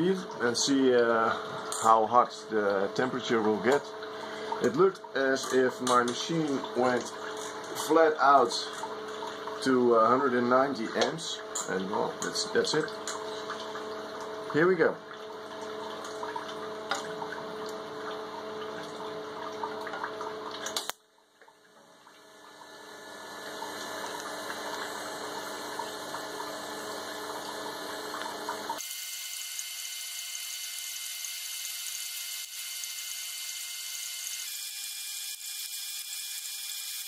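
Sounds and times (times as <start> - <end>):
aquarium pump humming: 0.0 - 37.0
water running through hoses: 21.6 - 37.0
welding arc buzzing: 22.7 - 37.0.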